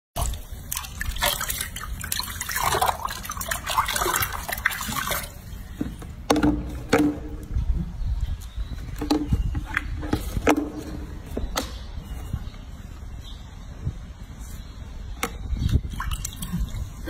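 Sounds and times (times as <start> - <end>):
water splashing in a sink: 0.2 - 5.4.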